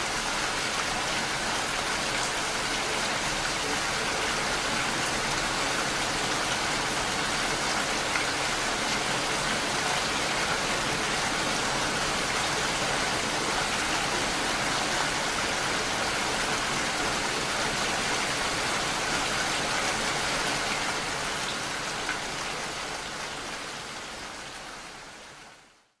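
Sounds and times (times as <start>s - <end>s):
steady rain falling: 0.0s - 26.0s.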